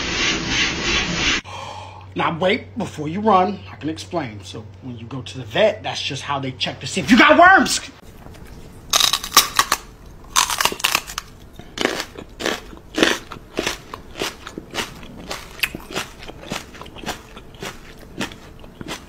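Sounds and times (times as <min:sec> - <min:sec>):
dog crunching crisp snack: 0:08.1 - 0:19.0.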